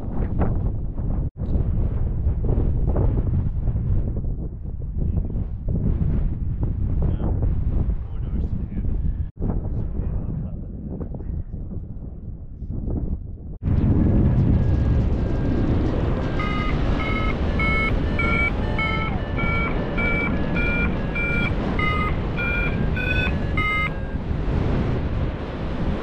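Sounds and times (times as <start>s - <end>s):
wind on microphone: 0.0s - 26.0s
variometer beeping: 15.3s - 24.6s.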